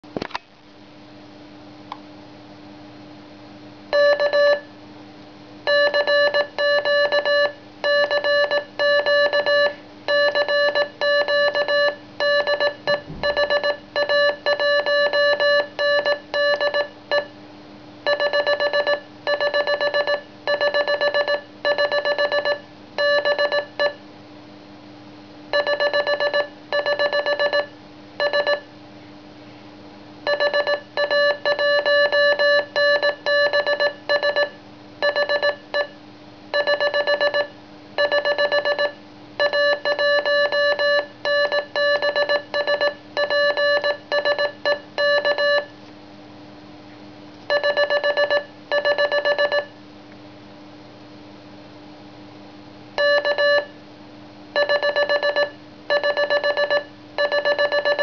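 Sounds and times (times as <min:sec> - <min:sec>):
morse code beeps: 0:04.0 - 0:04.6, 0:05.7 - 0:17.3, 0:18.1 - 0:24.0, 0:25.6 - 0:28.6, 0:30.3 - 0:35.9, 0:36.6 - 0:45.7, 0:47.5 - 0:49.7, 0:53.0 - 0:53.7, 0:54.6 - 0:58.0.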